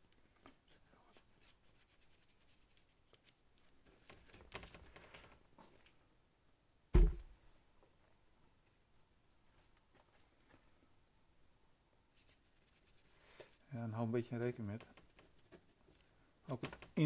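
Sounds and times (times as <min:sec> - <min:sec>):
paintbrush strokes on paper: 0:00.8 - 0:03.4, 0:12.1 - 0:16.0
dull thump: 0:06.9 - 0:07.4.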